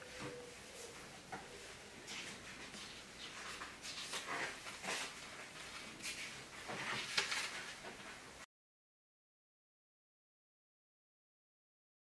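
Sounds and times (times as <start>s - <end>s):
paper pages rustling: 2.2s - 8.2s.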